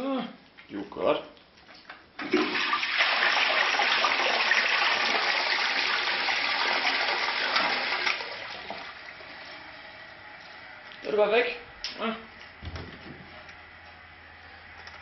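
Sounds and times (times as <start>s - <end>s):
toilet flush rushing water: 2.2s - 9.4s.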